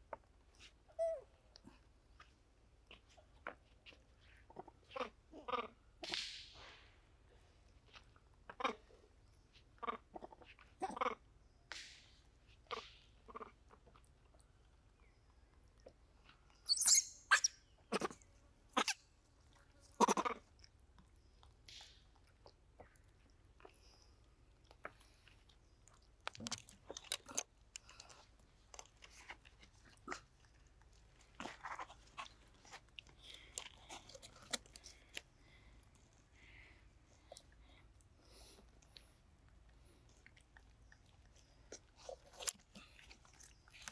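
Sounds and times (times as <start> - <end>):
monkeys crunching fruit: 16.7 - 43.9.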